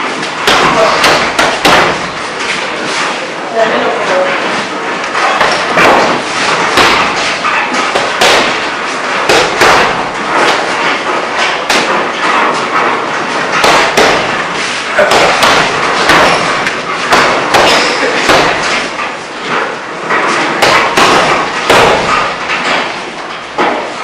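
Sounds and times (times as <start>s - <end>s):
punches thudding on heavy bag: 0.3s - 2.2s, 5.2s - 19.0s, 20.2s - 22.9s.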